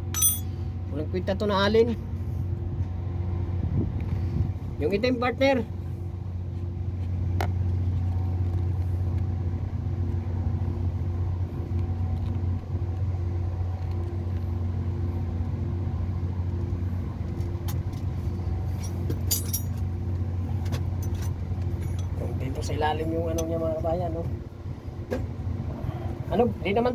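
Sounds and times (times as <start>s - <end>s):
metallic clink of tools: 0.0s - 0.5s, 19.3s - 19.8s
low mechanical hum: 0.0s - 26.9s.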